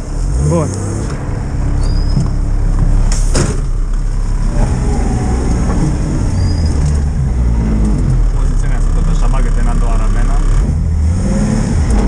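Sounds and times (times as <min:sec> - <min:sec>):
truck engine running: 0:00.0 - 0:10.5
car door slamming: 0:02.1 - 0:03.9.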